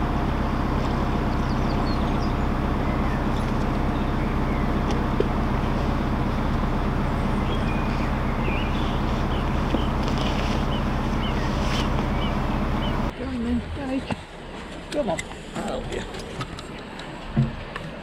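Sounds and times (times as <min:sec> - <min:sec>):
diesel boat engine humming: 0:00.0 - 0:18.0
faint bird chirps: 0:07.2 - 0:09.9.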